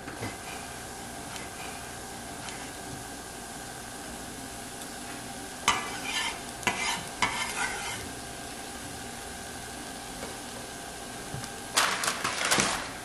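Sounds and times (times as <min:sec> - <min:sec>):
onions sizzling in a pan: 0:00.0 - 0:13.0
steady hum: 0:00.0 - 0:13.0
stirring in a pan: 0:00.1 - 0:03.6, 0:04.6 - 0:08.7.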